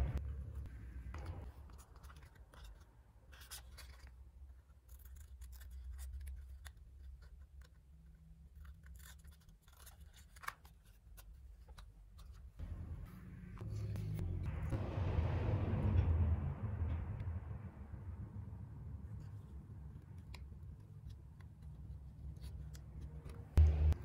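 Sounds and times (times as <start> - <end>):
low steady hum: 0.0 - 1.6, 12.6 - 24.0
scissors snipping paper: 1.8 - 12.4.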